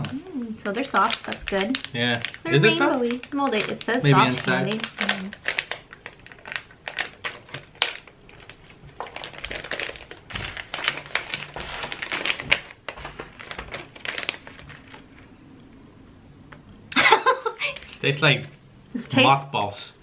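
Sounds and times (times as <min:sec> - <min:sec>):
plastic packet crinkling: 0:00.7 - 0:15.4, 0:17.6 - 0:18.1.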